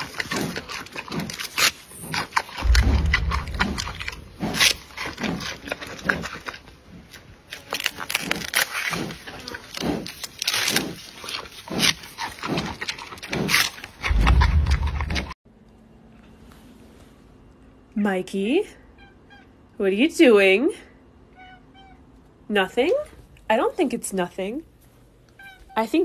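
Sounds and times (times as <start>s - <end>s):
panda chewing bamboo: 0.0s - 15.3s
low rumble: 2.6s - 5.3s, 14.1s - 15.3s.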